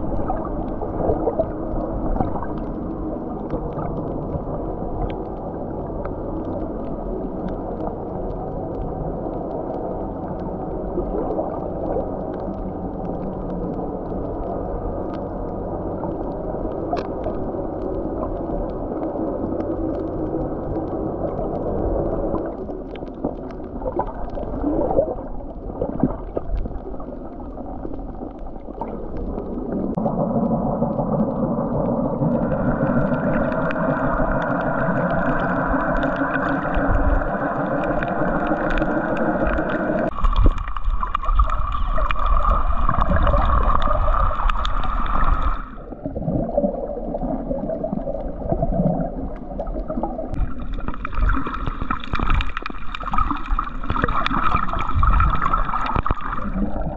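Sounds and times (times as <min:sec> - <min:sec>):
underwater rushing hiss: 0:31.4 - 0:48.1.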